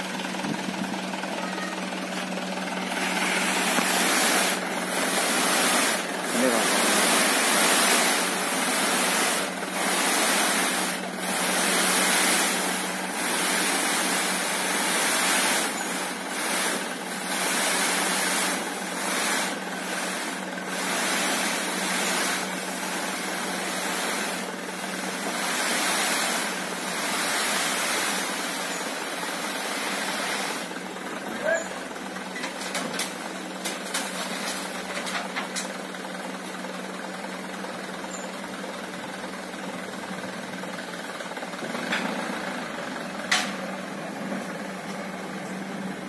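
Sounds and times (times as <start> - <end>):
truck engine running: 0.0 - 46.0
sand sliding off truck bed: 2.2 - 36.6.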